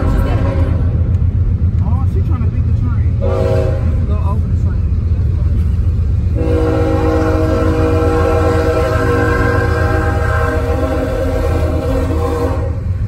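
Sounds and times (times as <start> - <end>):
car road rumble: 0.0 - 13.0
train air horn blast: 3.2 - 4.0, 6.3 - 13.0.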